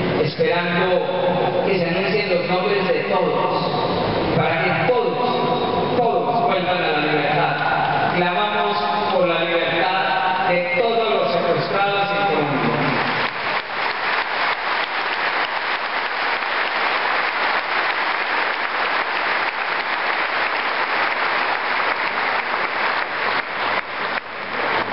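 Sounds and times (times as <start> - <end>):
man's amplified voice: 0.0 - 13.3
audience applauding: 12.3 - 24.9.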